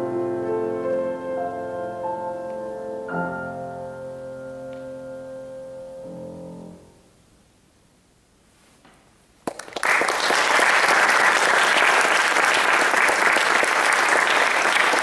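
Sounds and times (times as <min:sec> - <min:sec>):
audience applauding: 0:09.4 - 0:15.0.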